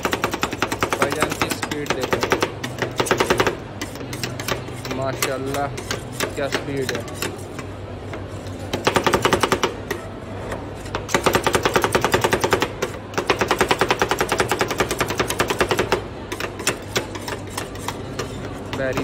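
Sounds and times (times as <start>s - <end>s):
metal spatulas clattering on steel: 16.3s - 19.0s.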